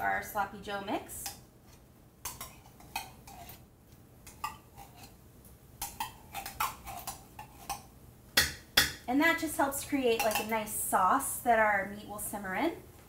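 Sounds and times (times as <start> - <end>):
spoon scraping metal can: 1.7 - 3.6, 5.8 - 7.8.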